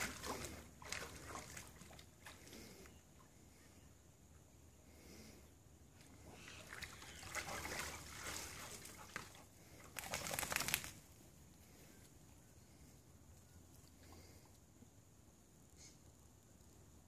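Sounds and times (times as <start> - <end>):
water sloshing and splashing: 0.0 - 2.8, 6.1 - 10.8.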